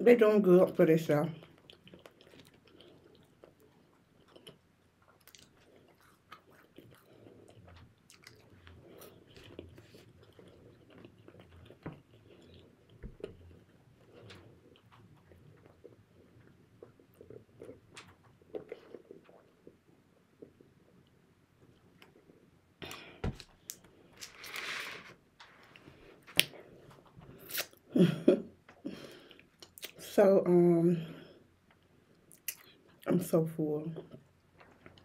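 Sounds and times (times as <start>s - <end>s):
chewing fried food: 1.4s - 24.4s, 28.7s - 30.1s, 34.0s - 35.0s
wet mouth clicks and smacks: 26.3s - 26.6s, 27.4s - 27.8s, 29.6s - 30.0s.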